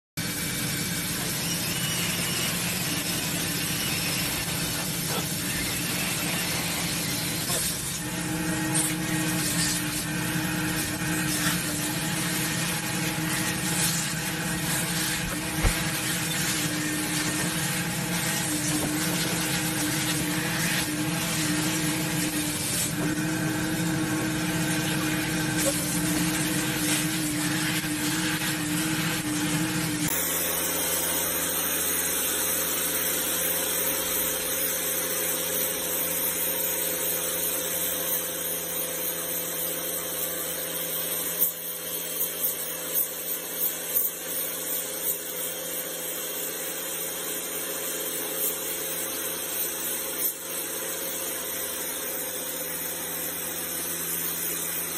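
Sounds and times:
vacuum motor humming: 0:00.2 - 0:38.8
pressure washer spraying paving: 0:00.2 - 0:54.9.

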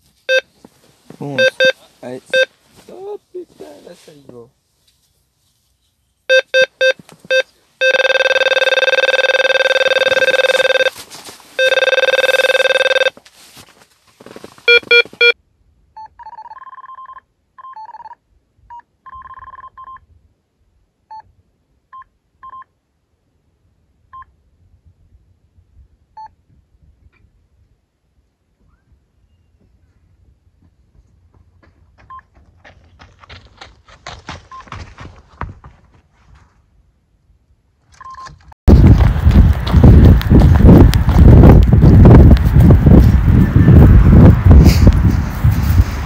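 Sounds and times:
bite alarm beeping: 0:01.4 - 0:02.5, 0:06.3 - 0:10.9, 0:11.6 - 0:13.1, 0:14.7 - 0:15.4
higher-pitched alarm chirps: 0:01.4 - 0:02.5, 0:06.3 - 0:10.9.

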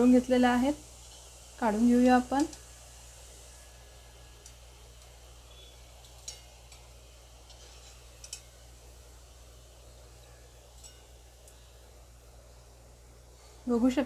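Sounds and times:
wire skimmer clinking on steel pan: 0:05.0 - 0:08.6, 0:10.6 - 0:11.2.

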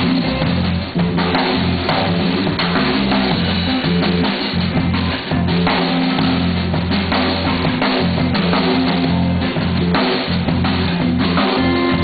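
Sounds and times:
drum kit: 0:00.0 - 0:12.0
electric guitar: 0:00.0 - 0:12.0
low bass notes: 0:00.0 - 0:12.0
saxophone: 0:11.4 - 0:12.0.

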